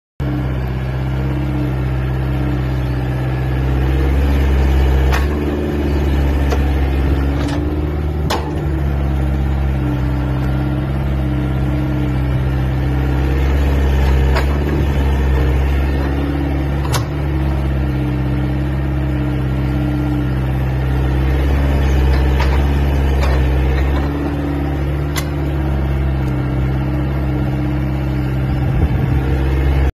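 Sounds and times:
excavator diesel engine running: 0.2 - 29.9
excavator bucket clanking: 5.0 - 8.9, 13.8 - 17.6, 21.4 - 26.5.

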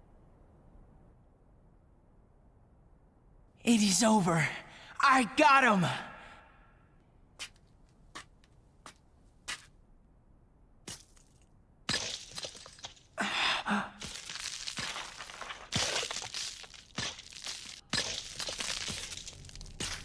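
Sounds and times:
sand armor cracking and crumbling: 10.9 - 20.0.

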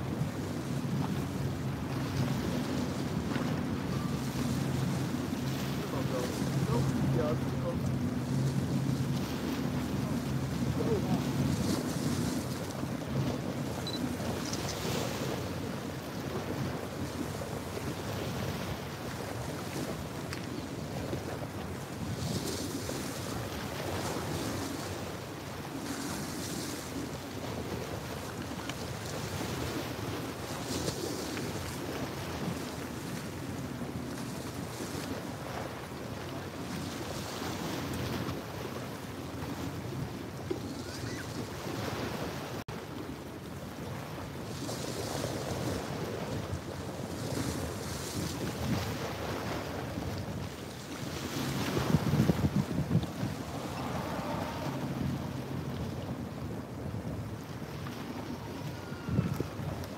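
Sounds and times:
wind buffeting microphone: 0.0 - 42.6, 43.5 - 59.9
waves splashing against rocks: 0.0 - 59.9
small waves washing over rocks: 43.2 - 59.9.

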